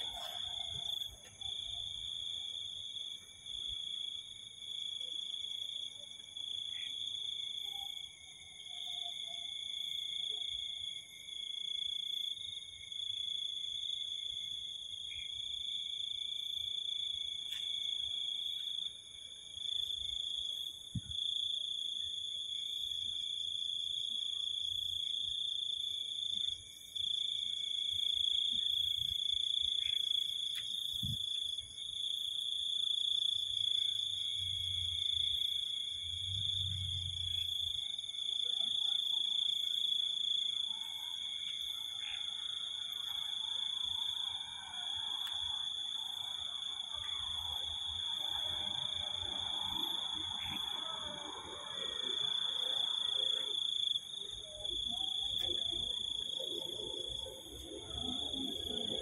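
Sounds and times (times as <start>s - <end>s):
insects chirring: 12.0s - 59.0s.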